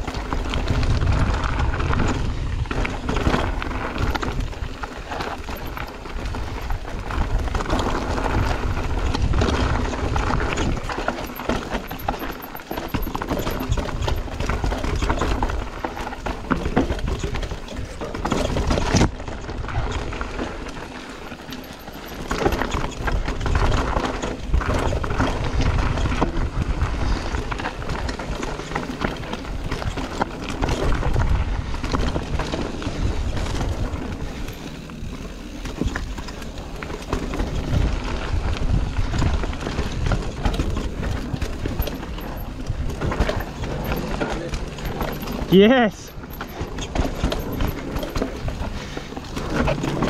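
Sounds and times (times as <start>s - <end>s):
wind buffeting microphone: 0.0s - 11.0s, 22.0s - 45.5s
bike rattling over bumps: 0.0s - 50.0s
bike tyres crunching over dirt: 0.0s - 50.0s.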